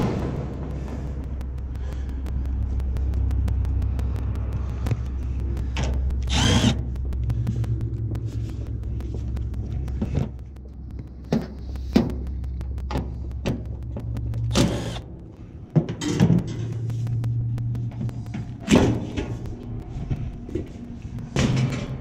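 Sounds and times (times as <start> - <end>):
steady low rumble: 0.0 - 22.0
cordless drill running: 6.3 - 6.8.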